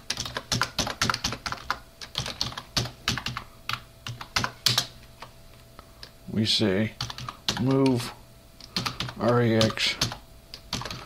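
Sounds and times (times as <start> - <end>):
computer keyboard typing: 0.0 - 5.3, 7.0 - 8.0, 8.6 - 11.0.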